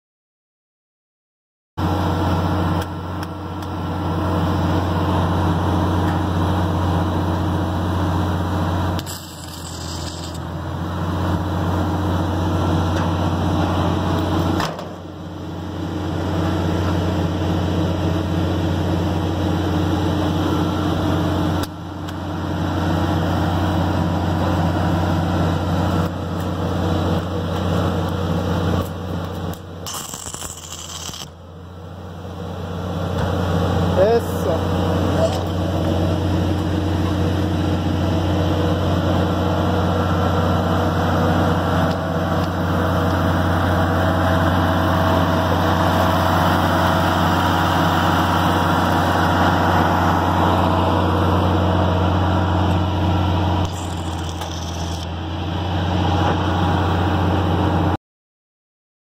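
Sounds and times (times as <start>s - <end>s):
welding machine drone: 1.8s - 58.0s
hissing welding arc bursts: 9.0s - 10.4s, 29.8s - 31.4s, 53.7s - 55.0s.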